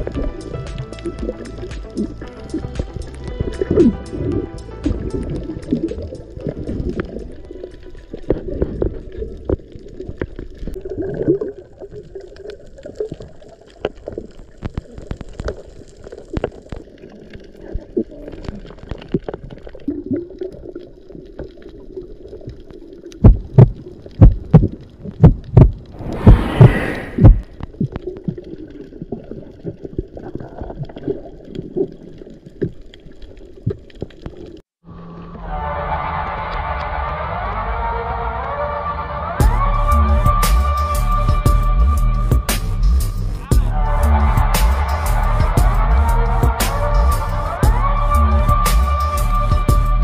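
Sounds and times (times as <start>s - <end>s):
music: 0.0s - 10.3s, 35.0s - 50.0s
underwater clicks and crackles: 0.0s - 26.0s, 27.2s - 34.7s
rush of bubbles: 0.0s - 34.6s
heavy low thumps: 26.0s - 27.5s.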